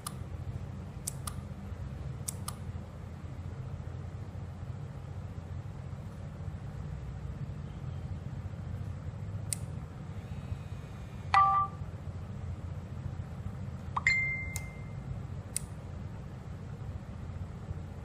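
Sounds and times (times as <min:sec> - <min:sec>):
steady low hum: 0:00.0 - 0:18.0
electronic chime: 0:11.4 - 0:11.8, 0:14.0 - 0:15.0
single high beep tone: 0:11.4 - 0:11.8, 0:14.0 - 0:15.0.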